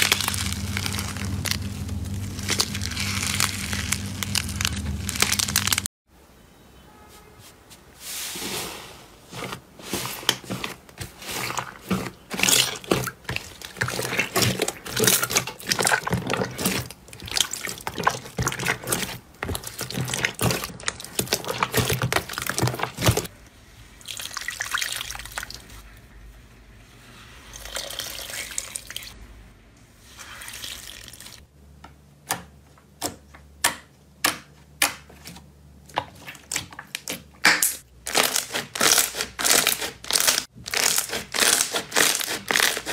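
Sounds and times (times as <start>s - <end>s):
slime squelching: 0.0s - 5.9s, 9.3s - 23.3s, 34.8s - 42.9s.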